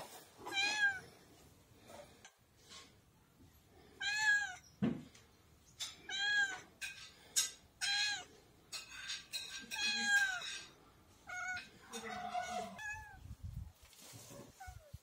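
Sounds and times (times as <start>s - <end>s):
cat meowing: 0.4s - 1.1s, 4.0s - 4.6s, 6.1s - 6.7s, 7.8s - 8.3s, 9.7s - 10.6s, 11.2s - 13.2s.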